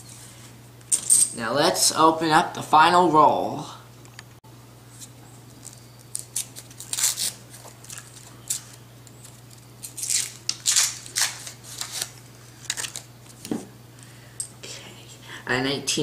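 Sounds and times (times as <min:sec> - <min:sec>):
paper wrapper tearing and crinkling: 0:05.6 - 0:13.5.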